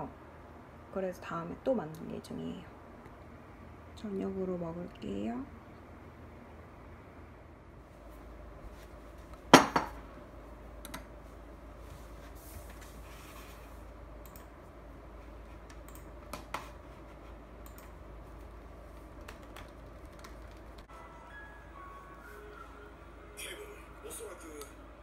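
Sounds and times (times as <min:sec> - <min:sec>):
tableware clunk on table: 0:09.5 - 0:10.0.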